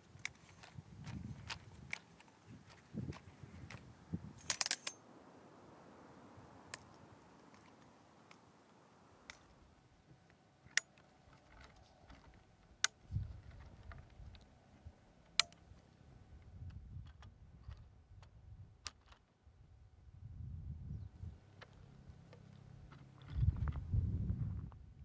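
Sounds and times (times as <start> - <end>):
tripod leg locks clicking: 0.0 - 3.8, 4.4 - 5.0, 15.3 - 15.7.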